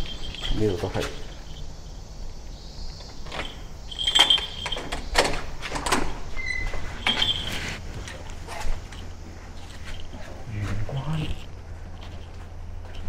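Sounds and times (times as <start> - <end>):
keys jangling: 0.0 - 1.7, 3.1 - 8.8
door opening: 3.0 - 9.0.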